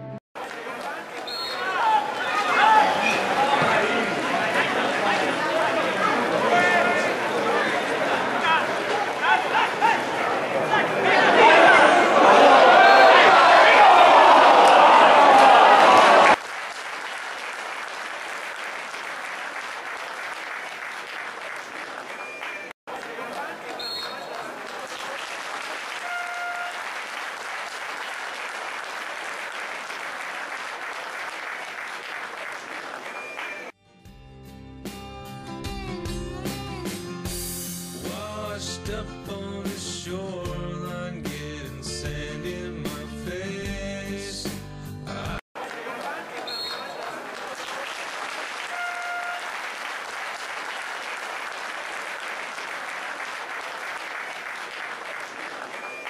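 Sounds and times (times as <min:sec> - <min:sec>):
crowd applauding: 0:00.4 - 0:33.8, 0:45.6 - 0:56.0
short horn tone: 0:26.0 - 0:26.8, 0:48.6 - 0:49.5.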